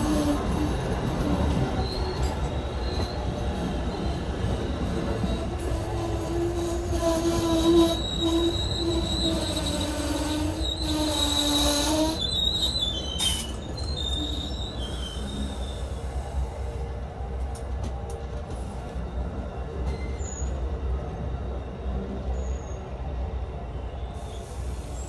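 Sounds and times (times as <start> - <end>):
train wheels squealing: 0.0 - 16.7, 18.7 - 25.0
low train rumble: 0.0 - 25.0.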